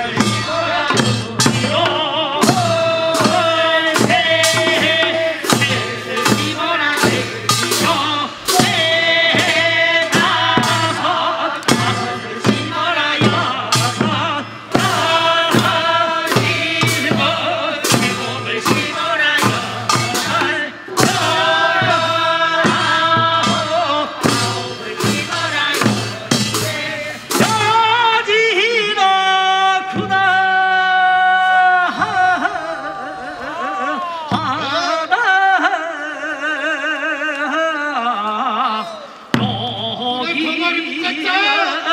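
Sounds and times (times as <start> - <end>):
drum beats: 0.0 - 35.5, 39.3 - 41.5
people singing work song: 0.0 - 41.9.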